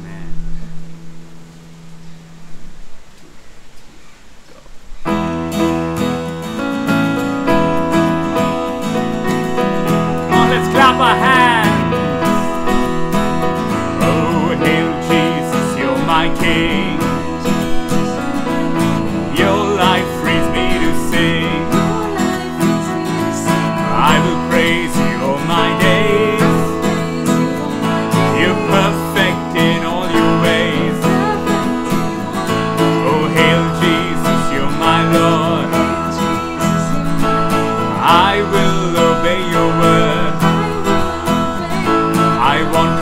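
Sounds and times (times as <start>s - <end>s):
acoustic guitar strumming: 4.9s - 43.0s
electronic keyboard playing: 5.1s - 43.0s
woman and man singing: 9.9s - 43.0s.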